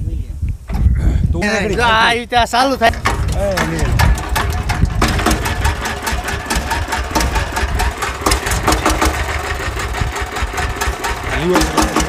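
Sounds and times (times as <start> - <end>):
single-cylinder diesel engine knocking: 2.9 - 12.0.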